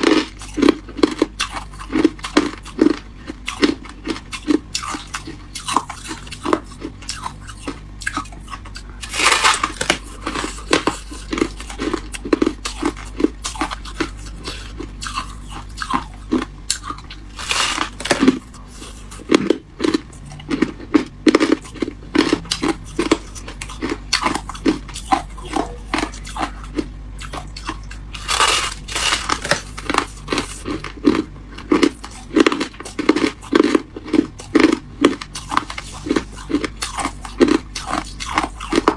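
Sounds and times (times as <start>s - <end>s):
chewing crunchy frost: 0.0s - 38.9s.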